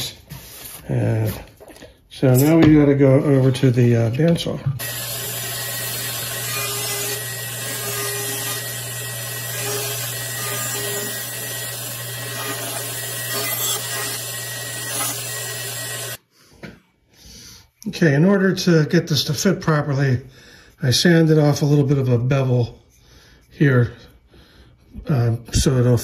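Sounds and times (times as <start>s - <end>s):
bandsaw cutting wood: 4.8s - 16.2s
motor hum: 4.8s - 16.2s.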